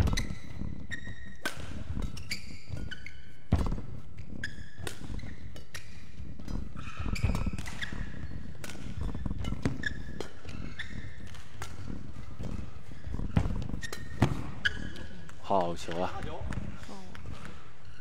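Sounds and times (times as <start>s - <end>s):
shoe squeaks on court: 0.0s - 15.4s
racket striking shuttlecock: 1.3s - 2.9s, 4.8s - 6.0s, 7.1s - 8.0s, 8.6s - 12.7s.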